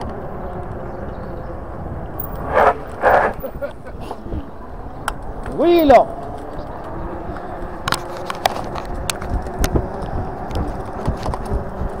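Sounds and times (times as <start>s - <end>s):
rumble of wind and tyres: 0.0s - 12.0s
bike rattling clicks: 5.0s - 12.0s.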